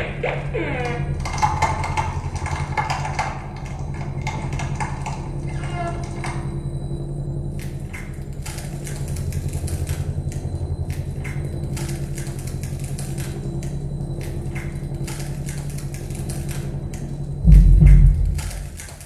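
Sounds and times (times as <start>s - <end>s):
short noisy clicks: 7.6s - 19.0s
pulsing electronic drone: 9.4s - 19.0s.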